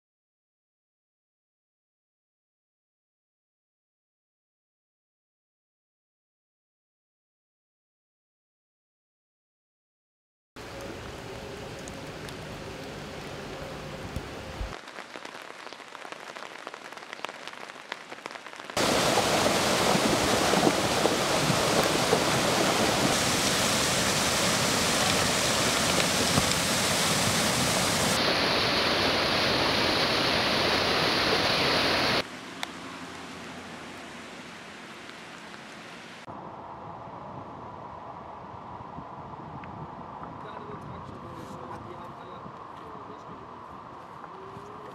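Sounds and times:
floodwater torrent rushing: 10.6 - 36.3
rain pattering: 10.6 - 36.3, 41.7 - 44.9.

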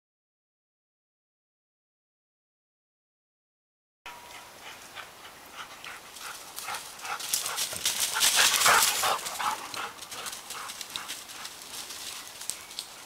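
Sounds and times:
dog panting: 4.6 - 11.6
paws hitting the ground: 5.9 - 13.0.

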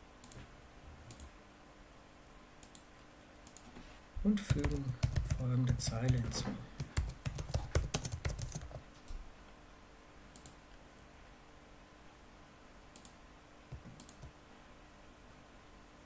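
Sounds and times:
keyboard and mouse clicks: 1.1 - 1.3, 2.6 - 3.7, 4.5 - 9.1, 10.3 - 10.6, 12.9 - 14.4
computer keyboard typing: 4.4 - 8.8, 13.7 - 14.3.

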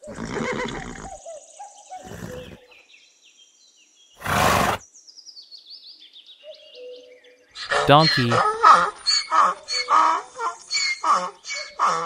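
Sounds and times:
small birds chirping: 0.1 - 8.4
pony snorting: 2.0 - 2.6, 4.2 - 4.8.

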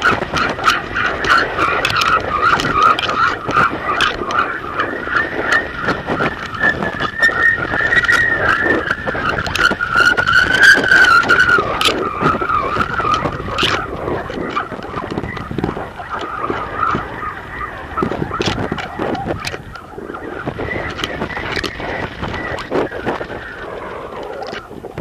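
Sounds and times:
wind buffeting microphone: 0.0 - 25.0
high wavering whistle: 0.5 - 24.8.

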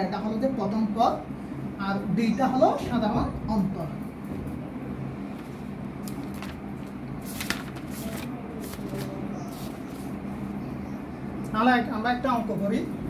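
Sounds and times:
steady low hum: 0.0 - 13.0
object being handled rustling: 7.2 - 10.2.

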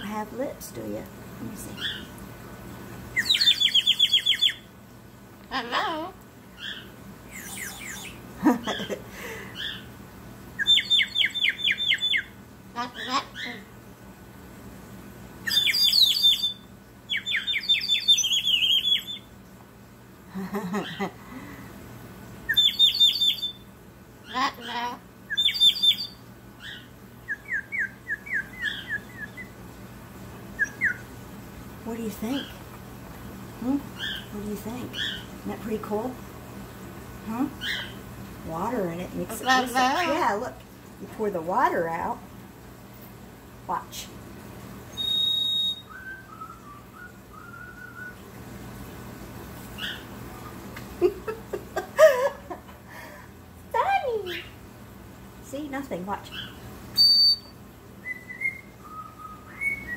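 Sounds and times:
water bird whistle warbling trills: 3.2 - 4.7, 6.7 - 8.2, 10.6 - 12.3, 15.5 - 19.3, 22.5 - 23.7, 25.3 - 26.2, 27.3 - 29.5, 30.6 - 31.0, 44.9 - 48.2, 57.0 - 59.9
ceramic water whistle high tone: 44.9 - 48.3, 57.0 - 59.9.

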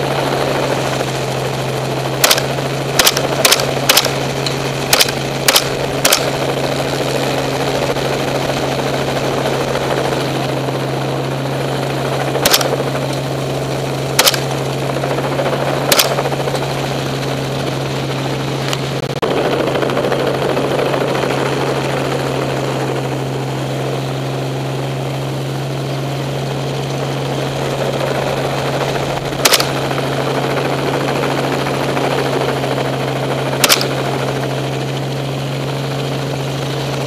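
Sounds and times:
helicopter rotor and engine drone: 0.0 - 37.0
rifle shots: 2.2 - 6.5, 12.4 - 13.0, 14.2 - 14.6, 15.9 - 16.4, 29.4 - 30.0, 33.6 - 34.2.

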